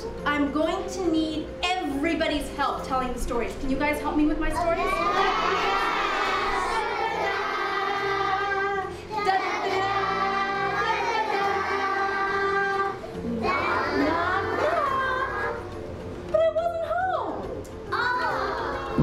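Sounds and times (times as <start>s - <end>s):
children singing: 4.7s - 15.7s.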